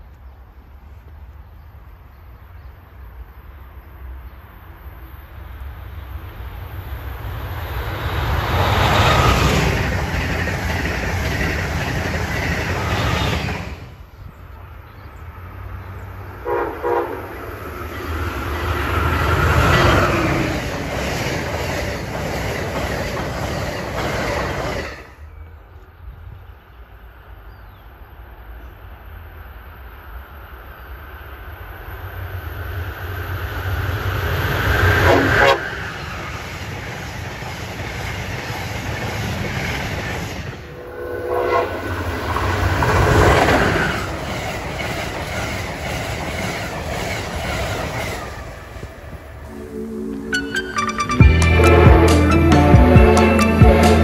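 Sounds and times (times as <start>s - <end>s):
electric locomotive hauling train: 0.0s - 54.0s
high-speed train rushing past: 0.0s - 54.0s
train horn blasts: 16.4s - 17.4s, 35.0s - 35.9s, 40.7s - 42.4s, 49.5s - 54.0s.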